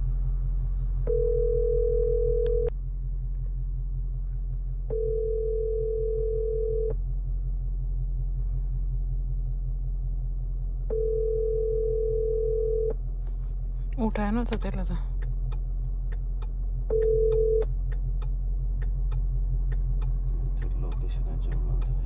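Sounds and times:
low rumble: 0.0s - 22.0s
telephone ringback tone: 1.1s - 2.7s.

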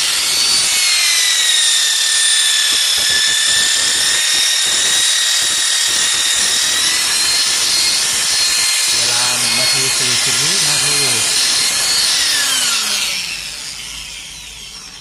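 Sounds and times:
electric polisher motor whine: 0.0s - 15.0s
polishing pad rubbing on glass: 6.9s - 12.2s.

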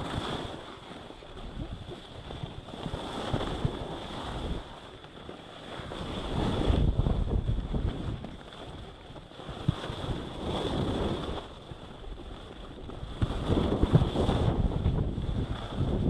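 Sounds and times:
skis scraping on snow: 0.0s - 16.0s
wind over microphone: 0.0s - 16.0s.

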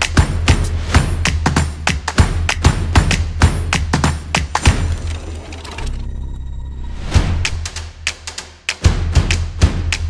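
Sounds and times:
background music with drum beat: 0.0s - 5.0s, 7.2s - 10.0s
sharp percussive hits: 0.0s - 5.6s, 7.1s - 10.0s.

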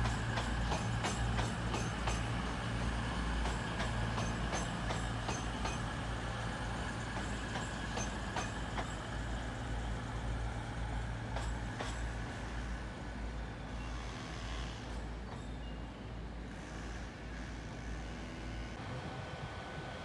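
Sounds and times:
diesel train engine droning: 0.0s - 20.0s.

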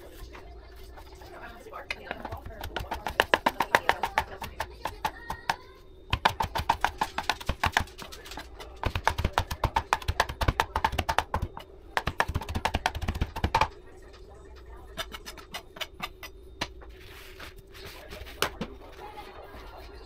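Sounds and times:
knife chopping on plastic board: 1.9s - 13.7s, 15.0s - 16.7s.

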